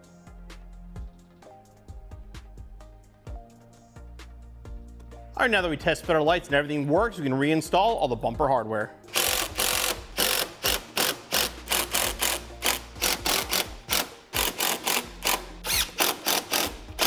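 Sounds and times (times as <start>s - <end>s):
impact driver hammering: 9.1s - 17.0s.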